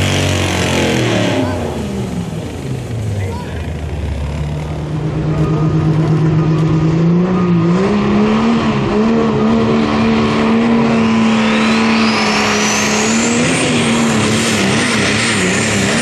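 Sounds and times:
diesel truck engine at full throttle: 0.0 - 16.0
high whine: 0.0 - 16.0.

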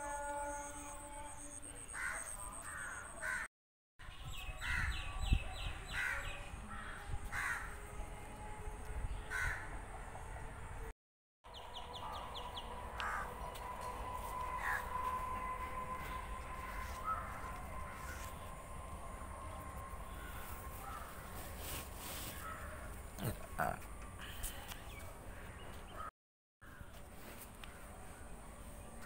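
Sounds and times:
crows cawing: 2.0 - 3.5, 6.0 - 7.8, 9.3 - 9.7, 13.0 - 13.7, 14.5 - 15.2, 16.0 - 18.4, 22.3 - 23.0.

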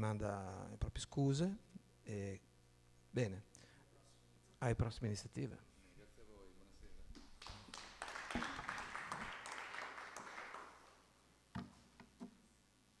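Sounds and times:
audience applause: 7.4 - 11.0.

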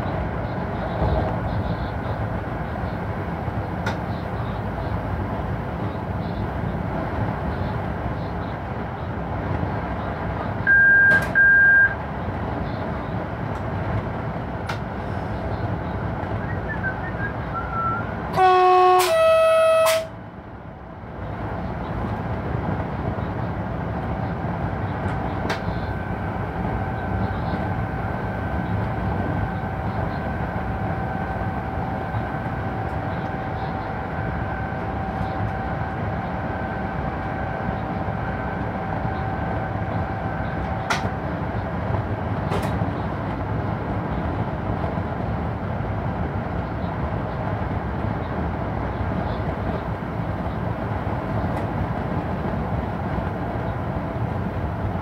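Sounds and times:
electric locomotive rumble: 0.0 - 55.0
short high beeps: 10.7 - 12.0
two-note locomotive horn: 17.6 - 20.2.

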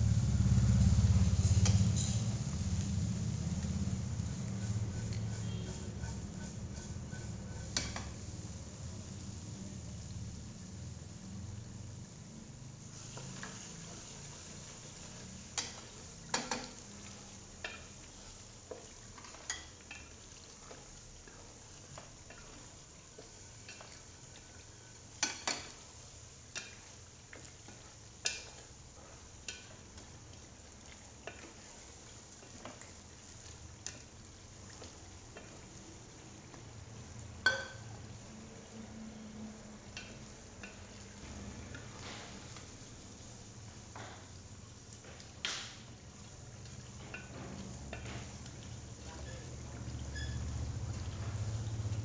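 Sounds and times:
sauce sizzling in oil: 0.0 - 52.0
spoon knocking and scraping pot: 4.2 - 8.2, 15.6 - 16.9, 23.6 - 25.8, 37.4 - 37.8.

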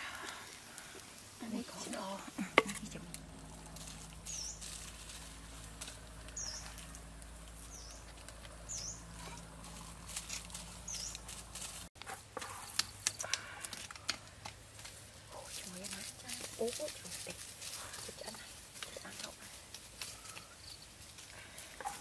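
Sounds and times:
meat crackling and popping: 0.0 - 22.0
bird chirping: 4.2 - 4.7, 6.2 - 6.9, 7.6 - 9.4, 10.5 - 11.3.

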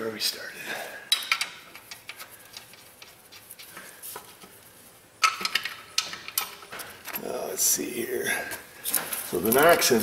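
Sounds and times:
metal parts and tools clinking: 1.1 - 3.8, 5.2 - 7.6.

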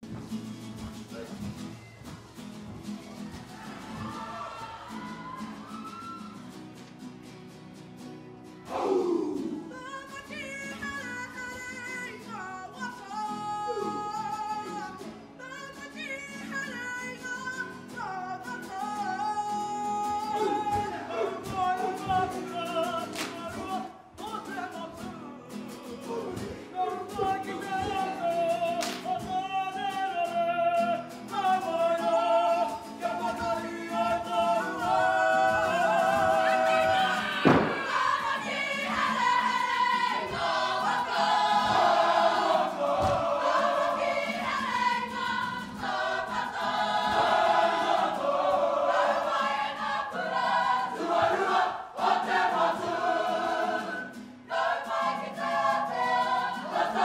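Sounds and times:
group singing in parts: 3.5 - 5.7, 8.7 - 12.2, 19.5 - 57.0.

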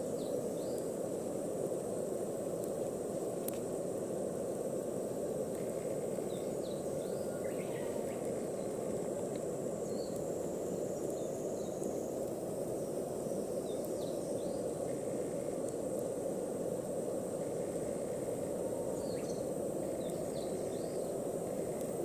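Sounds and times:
insects calling: 0.0 - 22.0
faint bird chirps: 5.7 - 8.8.

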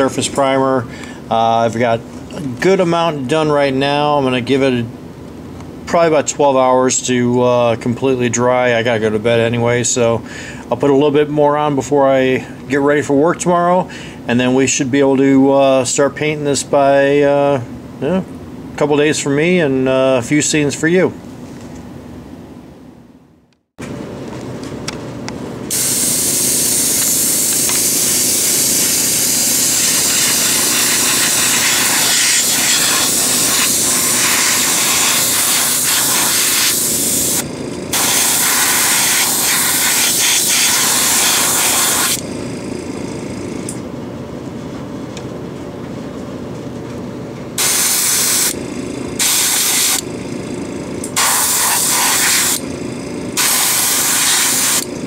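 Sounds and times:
airbrush spraying: 25.7 - 42.2, 47.6 - 48.6, 49.2 - 50.1, 51.1 - 52.6, 53.4 - 54.9
small compressor running: 25.7 - 43.9, 47.6 - 55.0.

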